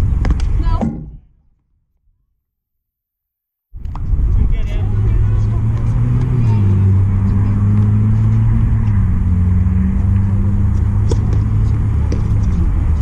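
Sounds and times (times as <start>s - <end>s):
short sharp knocks: 0.3s - 1.2s
low engine hum: 3.8s - 13.0s.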